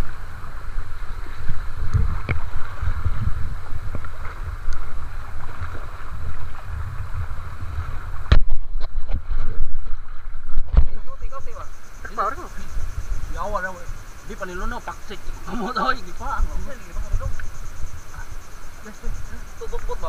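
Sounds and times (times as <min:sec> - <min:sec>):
choppy sea water: 0:00.0 - 0:20.0
wind buffeting microphone: 0:00.0 - 0:20.0
knocks and thumps on camera: 0:08.2 - 0:09.9.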